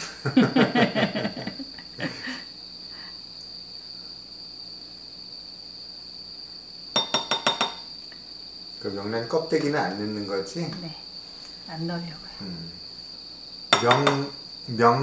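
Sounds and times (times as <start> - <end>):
person giggling: 0.0 - 2.5.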